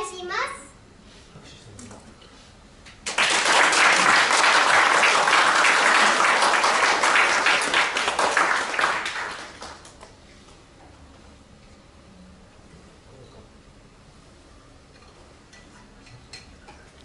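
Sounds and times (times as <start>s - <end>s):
audience applauding: 3.0s - 10.1s.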